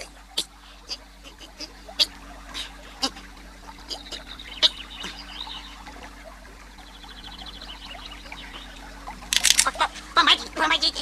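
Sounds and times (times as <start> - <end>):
sharp click: 9.3 - 9.8.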